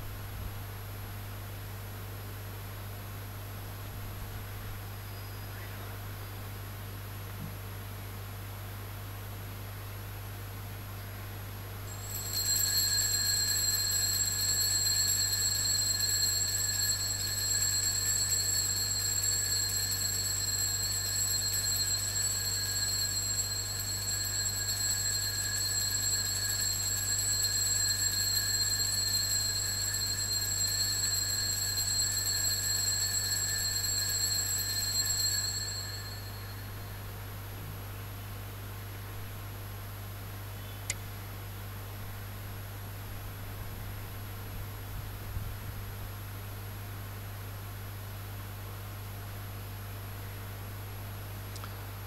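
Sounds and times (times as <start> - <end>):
altar bells ringing: 11.9 - 37.0.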